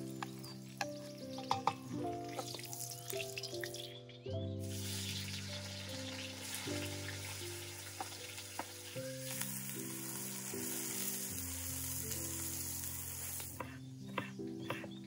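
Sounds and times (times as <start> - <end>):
onions sizzling in hot oil: 0.0 - 1.6, 2.2 - 3.8, 4.6 - 13.8.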